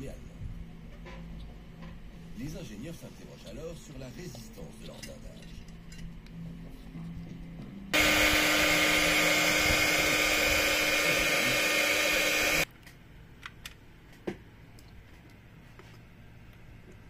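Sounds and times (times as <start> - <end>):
heat gun blowing: 8.0 - 12.7.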